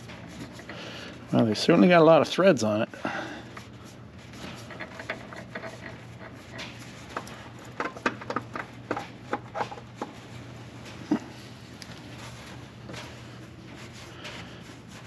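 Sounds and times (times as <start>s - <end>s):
steady low hum: 0.0s - 15.0s
paper towels rustling: 10.2s - 15.0s.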